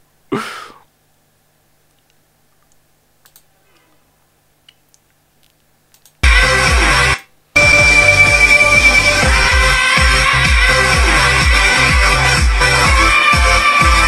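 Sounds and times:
computer mouse clicks: 1.9s - 3.8s, 4.7s - 6.2s
electronic music with heavy bass: 6.2s - 14.0s.

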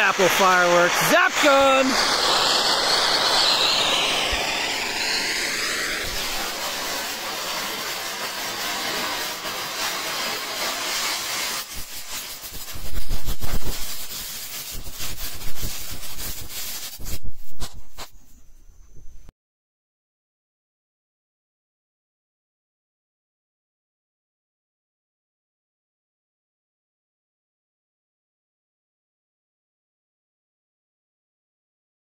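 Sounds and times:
firework spraying sparks hiss: 0.0s - 18.3s
rapid crackling pops: 6.0s - 18.1s.

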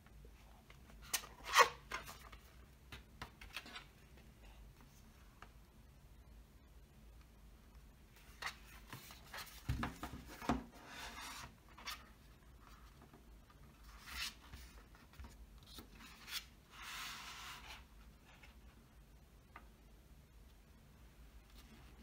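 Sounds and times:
cardboard sliding and rubbing: 8.6s - 12.0s, 16.0s - 18.5s.

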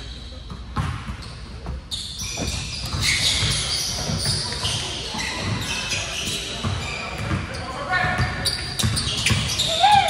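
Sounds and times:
basketball bouncing on gym floor: 0.5s - 4.7s, 6.6s - 10.0s
high-pitched shoe squeaks: 1.2s - 10.0s.

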